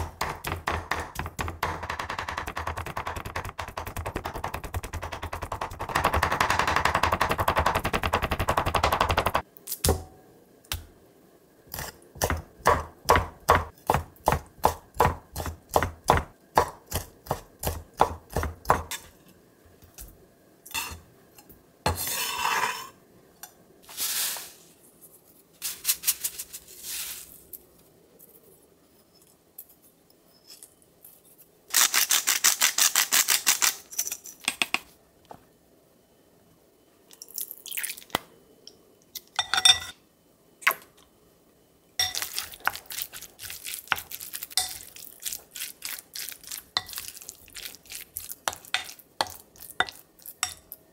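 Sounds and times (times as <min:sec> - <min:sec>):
knife chopping on wooden board: 0:00.0 - 0:09.3, 0:12.2 - 0:18.9.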